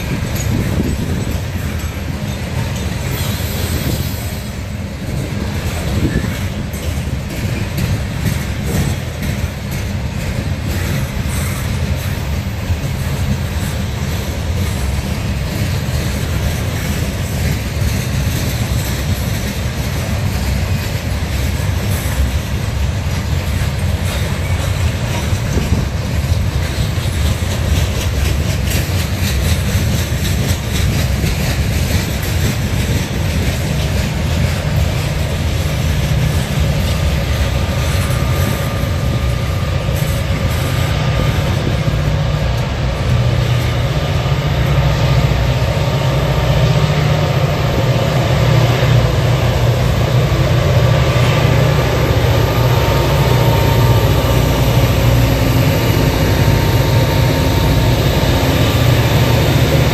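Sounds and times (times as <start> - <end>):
diesel locomotive engines: 0.0 - 59.9
train cars rumbling past: 0.0 - 59.9
wheel clicks over rail joints: 5.0 - 44.0.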